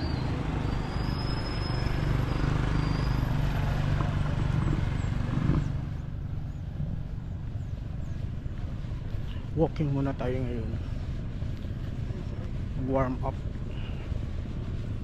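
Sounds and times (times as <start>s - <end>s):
outdoor background noise: 0.0s - 15.0s
vehicle engine humming: 0.0s - 15.0s.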